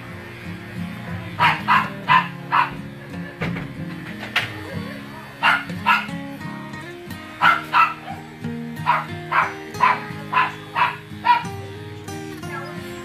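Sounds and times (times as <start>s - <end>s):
background music: 0.0s - 13.0s
dog barking: 1.4s - 3.0s, 4.8s - 6.2s, 7.4s - 11.6s, 12.4s - 12.9s.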